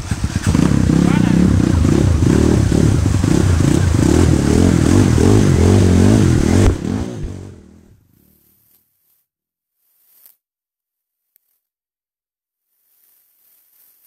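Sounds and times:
water splashing: 0.0s - 7.4s
dirt bike engine revving: 0.0s - 8.0s.

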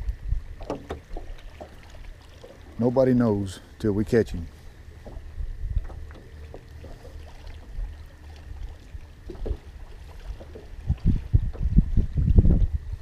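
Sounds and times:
steady low rumble: 0.0s - 13.0s
water lapping against boat: 0.0s - 13.0s
low thumps: 10.3s - 13.0s.

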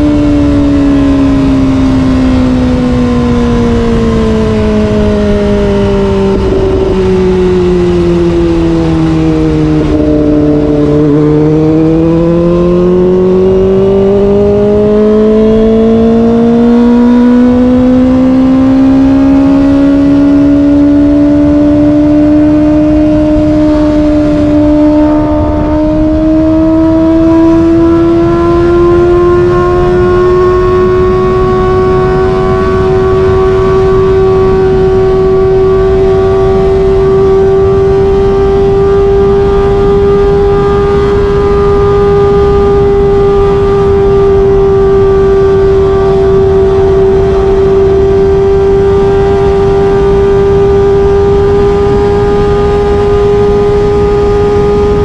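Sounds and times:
wind rush: 0.0s - 16.6s, 17.2s - 55.0s
motorcycle engine accelerating: 0.0s - 55.0s.

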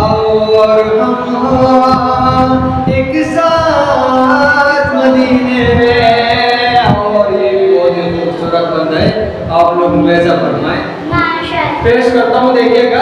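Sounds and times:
man singing unaccompanied: 0.0s - 9.7s.

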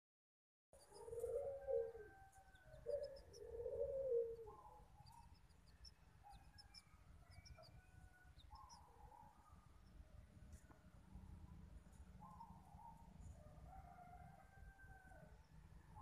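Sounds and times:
small birds chirping: 0.8s - 1.5s, 2.4s - 13.4s
dove cooing: 0.8s - 4.8s.

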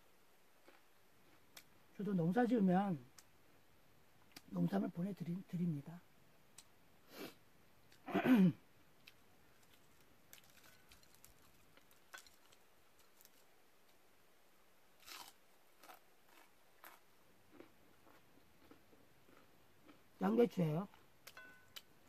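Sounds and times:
chewing and biting: 9.0s - 13.5s, 15.0s - 20.0s.

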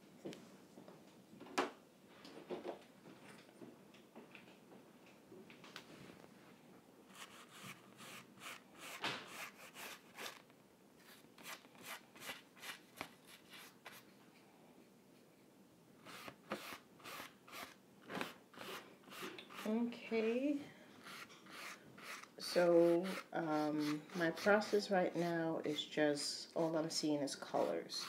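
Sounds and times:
paintbrush strokes on canvas: 18.6s - 20.3s, 21.0s - 28.0s.

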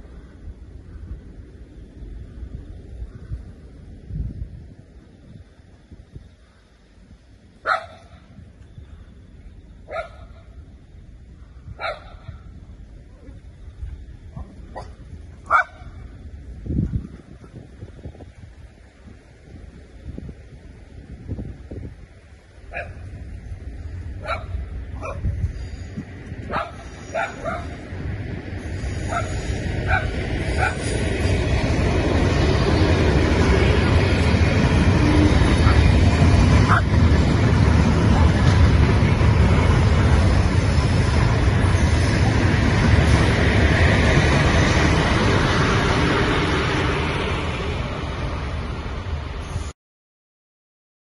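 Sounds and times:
train rumbling: 0.0s - 49.8s
dog barking: 7.6s - 8.2s, 9.9s - 10.5s, 11.8s - 12.4s, 14.4s - 15.9s, 22.7s - 23.0s, 24.2s - 25.2s, 26.5s - 27.8s, 29.1s - 29.3s, 29.9s - 30.8s.

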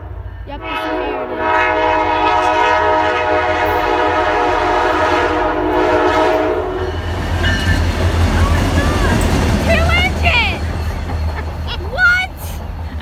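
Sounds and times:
low rumble of train: 0.0s - 13.0s
locomotive air horn blasts: 0.6s - 7.0s.

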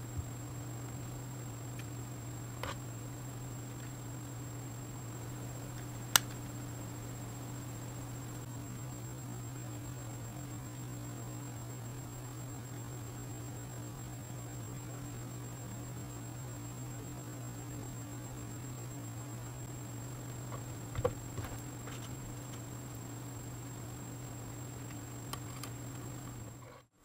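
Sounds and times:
low electrical hum: 0.0s - 27.0s
thin high whine: 0.0s - 27.0s
sharp click: 6.1s - 6.4s.

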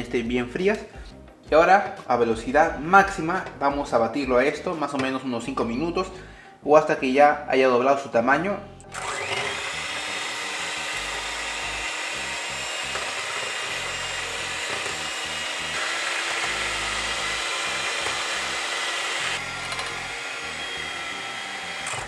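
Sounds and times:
electric hand mixer whining: 8.8s - 22.0s.

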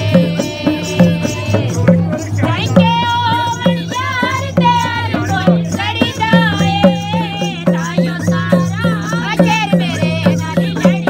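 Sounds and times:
barrel drum beat: 0.0s - 11.0s
woman singing folk melody: 2.6s - 11.0s.

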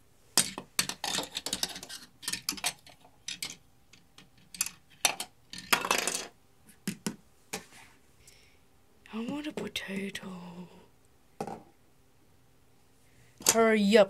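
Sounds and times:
plastic figurines clattering on wood: 0.4s - 6.3s.

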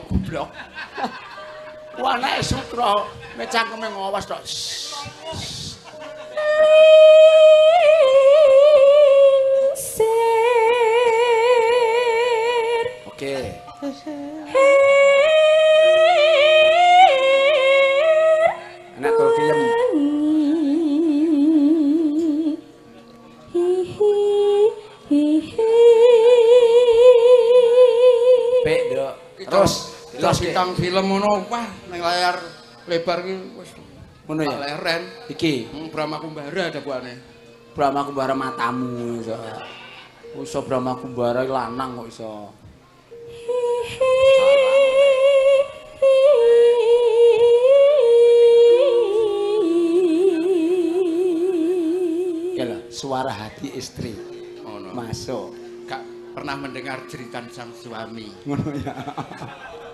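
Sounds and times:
woman singing with vibrato: 4.5s - 22.9s, 23.5s - 30.4s, 43.1s - 53.0s
woman singing solo: 13.8s - 22.7s.

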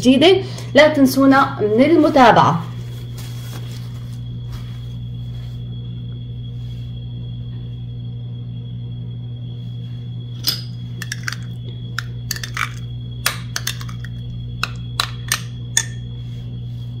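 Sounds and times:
steady low hum: 0.0s - 17.0s
glass bowl clinking: 10.4s - 16.1s.

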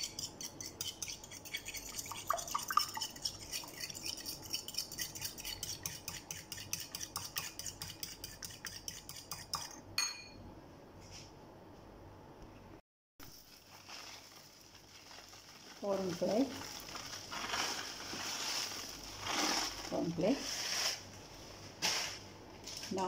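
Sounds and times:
whisk clicking against ceramic bowl: 0.0s - 10.1s.

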